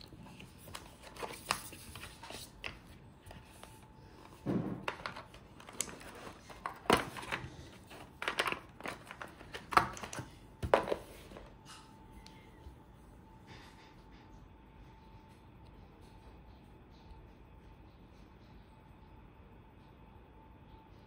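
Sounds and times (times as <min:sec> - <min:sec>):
cardboard and paper rustling: 0:00.0 - 0:11.6
box knocks: 0:04.4 - 0:05.0.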